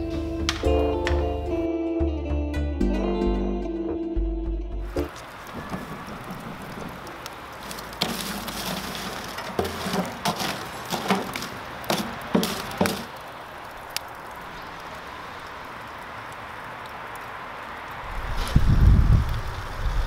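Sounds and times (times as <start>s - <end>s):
charcoal clinking and cracking: 5.0s - 14.4s.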